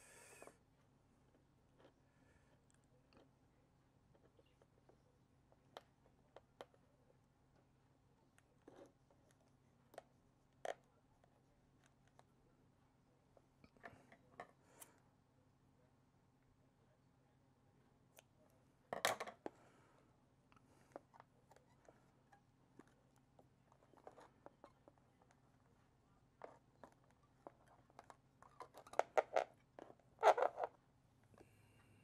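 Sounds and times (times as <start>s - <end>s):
faint low hum: 0.0s - 32.0s.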